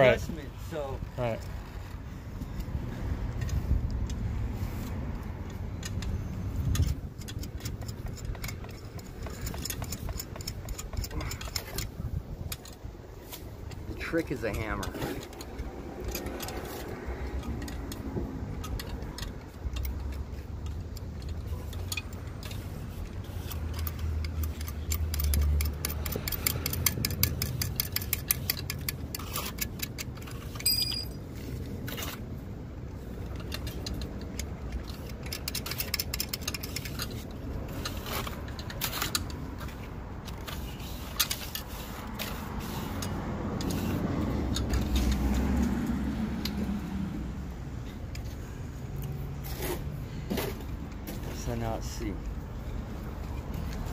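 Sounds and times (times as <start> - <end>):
metal parts clinking: 5.4 - 32.4, 33.0 - 45.7.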